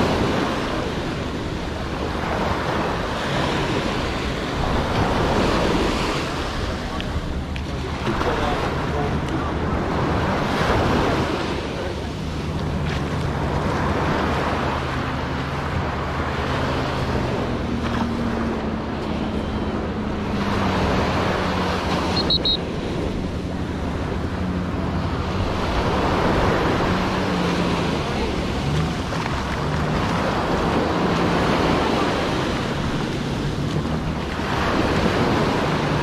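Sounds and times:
ocean surf breaking: 0:00.0 - 0:36.0
wind on microphone: 0:00.0 - 0:36.0
low steady drone: 0:11.6 - 0:36.0.

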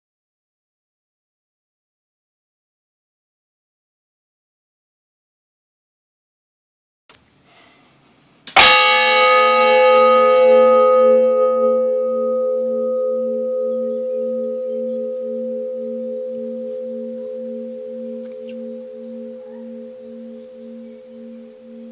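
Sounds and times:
church bell ringing: 0:08.6 - 0:21.9.

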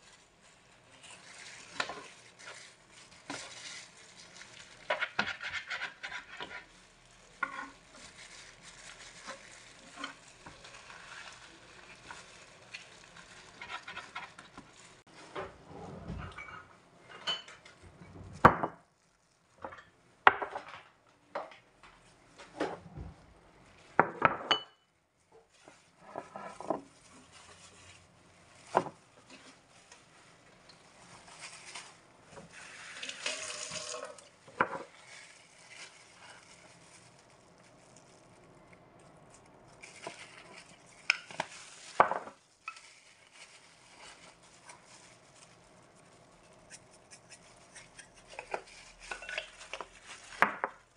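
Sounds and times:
rustling: 0:00.0 - 0:16.4, 0:25.2 - 0:50.9
bowls and utensils clinking: 0:33.0 - 0:35.0, 0:47.1 - 0:50.8.

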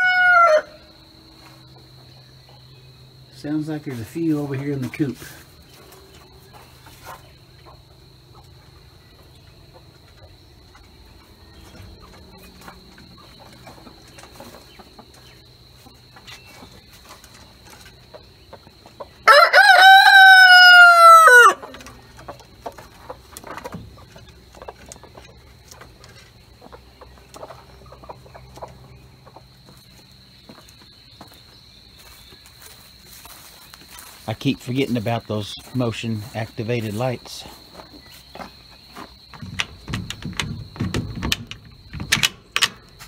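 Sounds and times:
rooster crowing: 0:00.0 - 0:01.0, 0:19.2 - 0:21.8.

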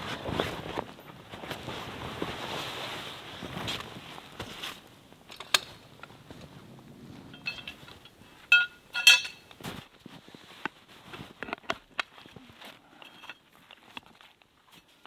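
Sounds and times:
metal tent stakes clinking: 0:07.2 - 0:09.8, 0:11.2 - 0:15.0.

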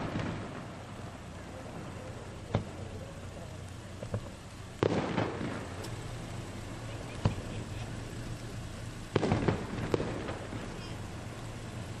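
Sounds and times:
sharp firework bang: 0:00.0 - 0:00.7, 0:04.1 - 0:06.1, 0:09.1 - 0:11.1
fireworks popping and crackling: 0:00.0 - 0:12.0.

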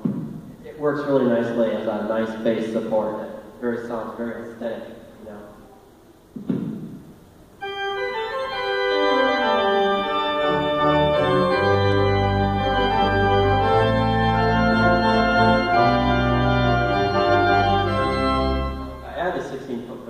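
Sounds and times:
deep organ pedal bass notes: 0:07.5 - 0:20.0
pipe organ playing: 0:07.6 - 0:20.0.

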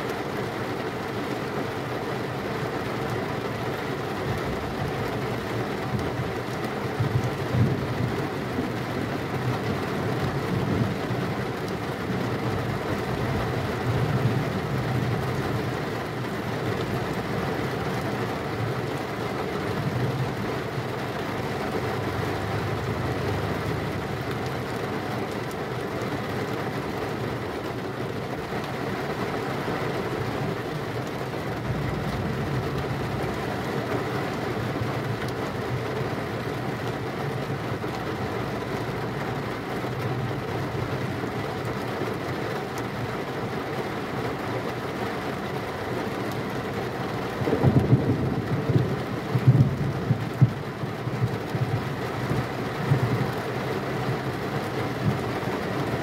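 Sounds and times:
heavy rain: 0:00.0 - 0:56.0
low thunder rumbling: 0:47.4 - 0:50.7.

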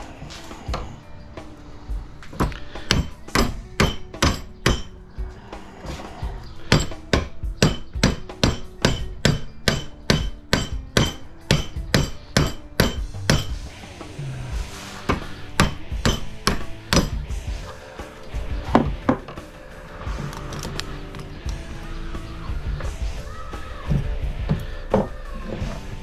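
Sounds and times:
hammer blows on metal: 0:02.8 - 0:05.0, 0:06.7 - 0:13.6.

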